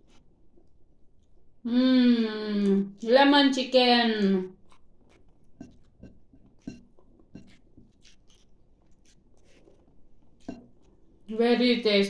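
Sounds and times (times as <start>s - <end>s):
person chewing softly: 0.0s - 1.6s, 4.5s - 11.4s.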